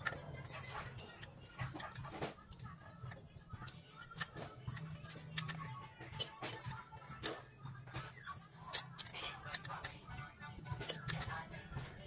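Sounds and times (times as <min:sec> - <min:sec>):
tools handling engine parts clicks: 0:00.0 - 0:07.6, 0:08.6 - 0:12.0
quiet background music: 0:00.0 - 0:12.0.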